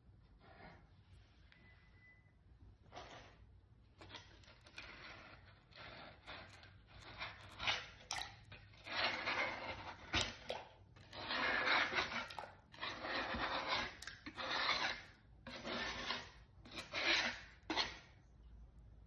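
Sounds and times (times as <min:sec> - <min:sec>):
pad scrubbing clay: 0:08.8 - 0:18.1.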